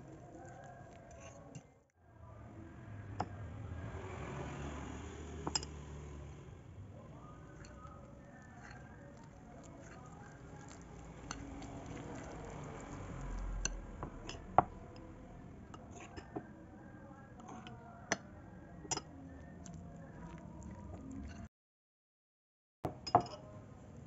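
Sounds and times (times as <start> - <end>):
utensil squishing and scraping: 0.0 - 1.8, 7.2 - 15.0, 18.9 - 21.5
metal clinking against glass: 23.0 - 23.4.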